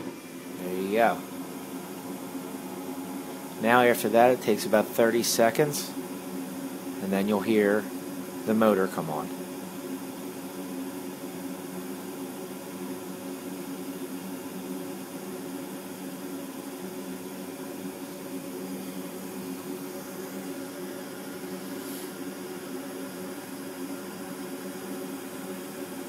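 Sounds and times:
furnace humming: 0:00.0 - 0:26.0.

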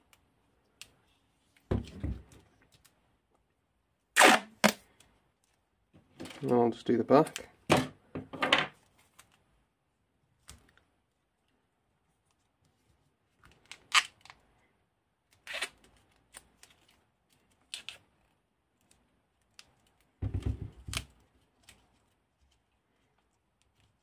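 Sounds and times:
tape tearing off roll: 0:04.2 - 0:04.8.

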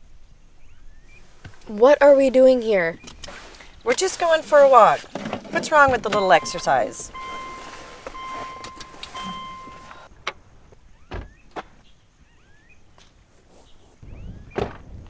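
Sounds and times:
car door warning chime: 0:05.6 - 0:10.1.

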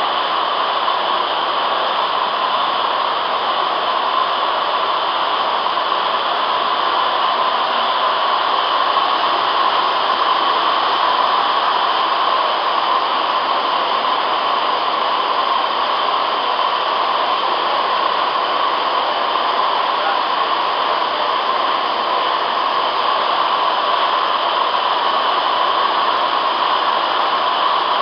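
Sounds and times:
blender machine hissing: 0:00.0 - 0:28.0.

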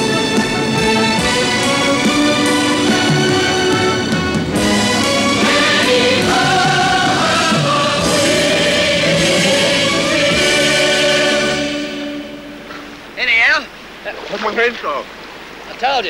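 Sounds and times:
choir singing with music: 0:00.0 - 0:13.1.

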